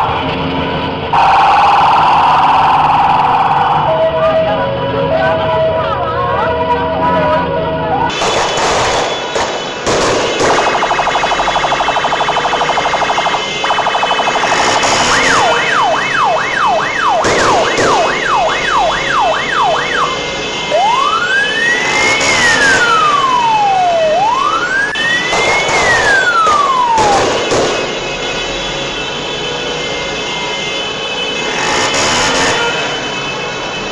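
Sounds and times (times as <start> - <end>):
electronic siren cycling tones: 1.1 - 4.3, 10.7 - 27.2
sharp bangs: 8.1 - 20.6, 25.0 - 28.3.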